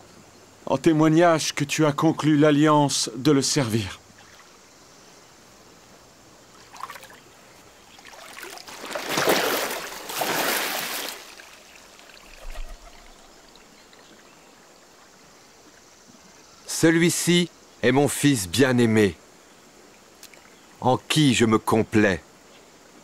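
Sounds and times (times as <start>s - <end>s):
water splashing and streaming: 4.0s - 4.9s, 5.6s - 16.4s, 19.2s - 20.6s.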